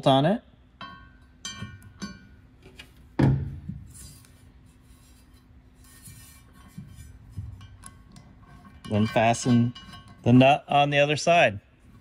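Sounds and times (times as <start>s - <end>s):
light metal scraping: 3.8s - 10.6s.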